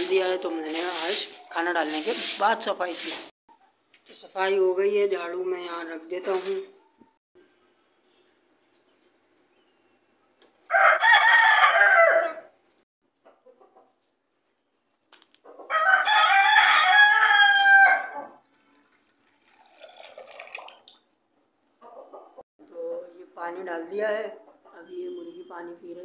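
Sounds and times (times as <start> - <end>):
rooster crowing: 10.7 - 12.5, 15.7 - 18.3.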